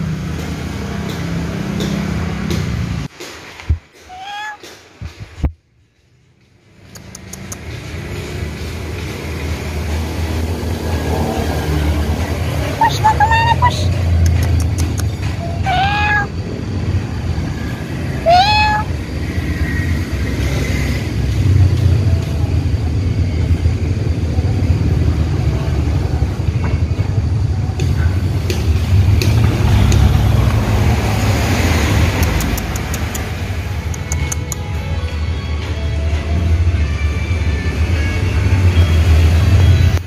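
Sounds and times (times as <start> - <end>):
cat meowing: 4.0 - 4.7, 15.4 - 16.4, 18.2 - 19.0.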